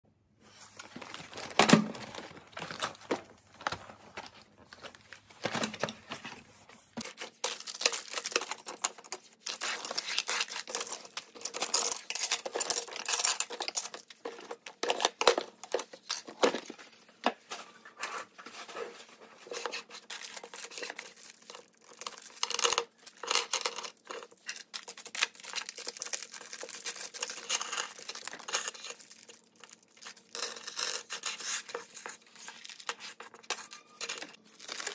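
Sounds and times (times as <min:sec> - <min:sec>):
plastic bags crinkling: 0:07.2 - 0:16.9, 0:18.6 - 0:34.9.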